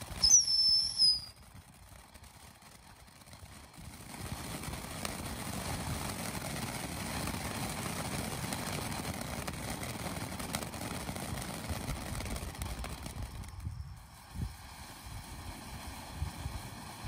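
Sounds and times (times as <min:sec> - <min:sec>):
faint crackles: 0:00.0 - 0:17.0
firework fountain hissing sparks: 0:00.0 - 0:17.0.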